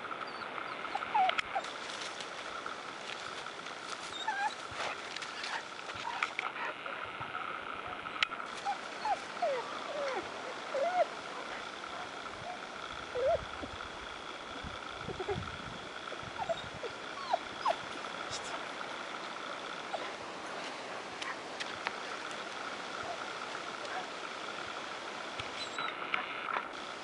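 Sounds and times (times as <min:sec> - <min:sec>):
short squeaky calls: 0:25.5 - 0:26.0.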